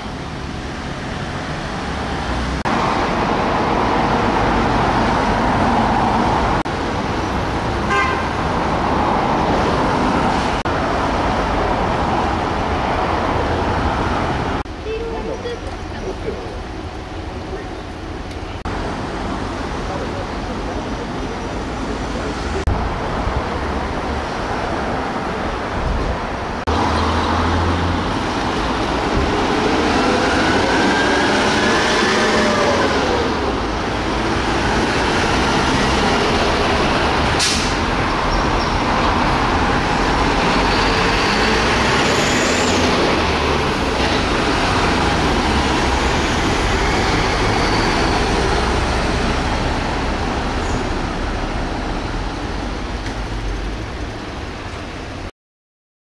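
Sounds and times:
heavy truck engine: 0.0s - 55.2s
traffic noise: 0.0s - 55.3s.

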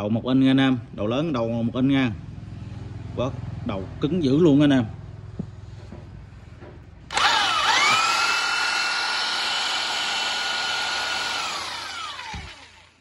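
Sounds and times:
impact wrench motor whining: 7.1s - 13.0s.

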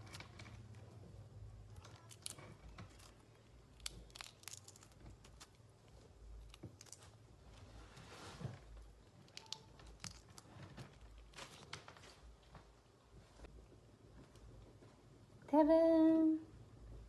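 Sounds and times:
low steady hum: 0.0s - 17.0s
eggshell crackling: 1.7s - 7.5s, 8.9s - 11.8s.

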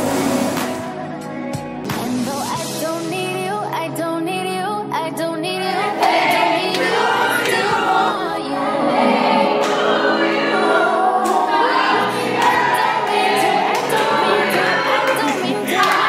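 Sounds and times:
voices singing together: 5.3s - 16.0s.

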